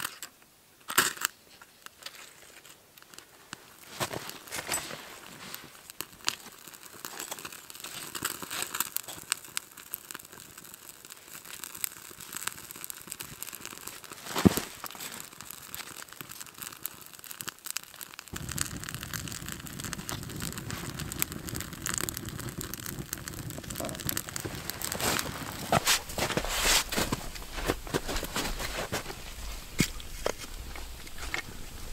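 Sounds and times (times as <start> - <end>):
wood fire crackling and popping: 0.0 - 31.9
steady low rumble: 18.4 - 31.9.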